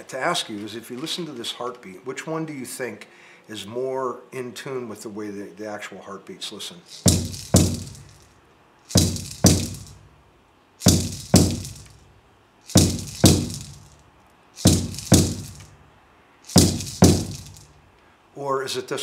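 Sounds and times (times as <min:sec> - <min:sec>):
frame drum booming: 0:07.1 - 0:08.2, 0:09.0 - 0:10.0, 0:10.9 - 0:12.0, 0:12.7 - 0:13.9, 0:14.6 - 0:15.8, 0:16.5 - 0:17.7.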